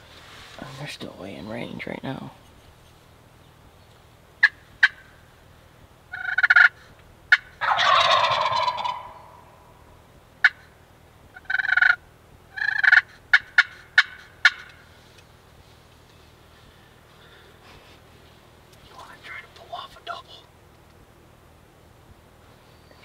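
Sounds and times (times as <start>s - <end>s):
turkeys gobbling: 4.4s - 5.2s, 6.1s - 9.7s, 10.4s - 10.7s, 11.3s - 14.9s.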